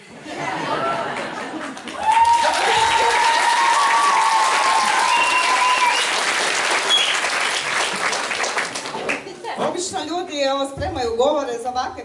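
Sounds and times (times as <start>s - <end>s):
audience clapping: 1.0s - 9.5s
long high held whistle or cheer: 3.2s - 7.6s.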